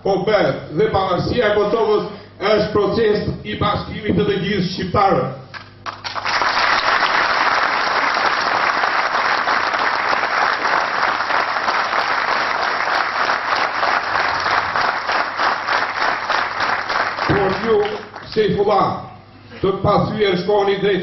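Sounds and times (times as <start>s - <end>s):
audience applauding: 5.8s - 18.4s.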